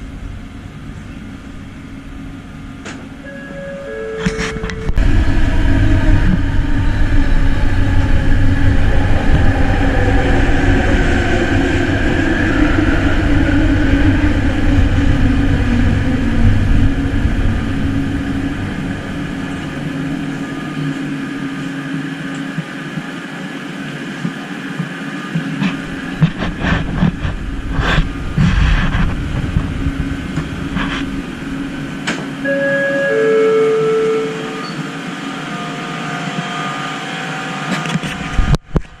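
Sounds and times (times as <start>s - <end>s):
electric train drive whine: 0.0s - 39.0s
train wheels rumbling: 0.0s - 39.0s
short beep tone: 3.2s - 5.0s, 32.4s - 34.9s.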